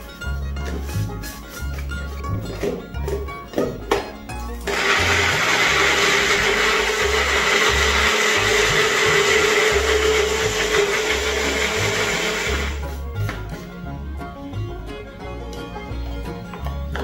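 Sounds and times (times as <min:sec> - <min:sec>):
blender motor whining: 0:04.7 - 0:12.8.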